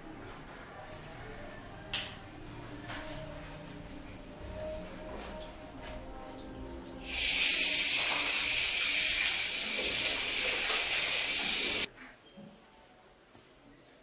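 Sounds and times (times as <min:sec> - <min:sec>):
water running from a tap: 0:07.0 - 0:11.9.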